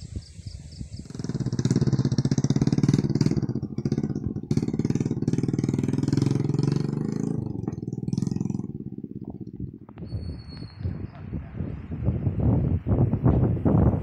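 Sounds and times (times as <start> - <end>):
small motorbike engines running: 0.7 - 11.6.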